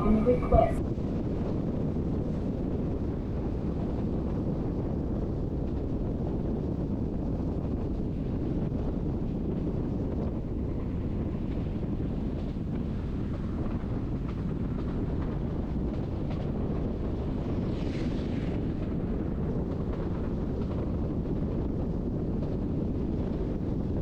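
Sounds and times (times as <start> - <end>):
train rumbling in motion: 0.0 - 1.4, 9.5 - 23.9.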